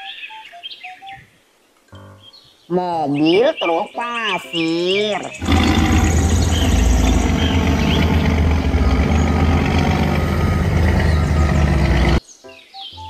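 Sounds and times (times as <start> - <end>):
truck diesel engine rumbling: 5.4 - 12.2.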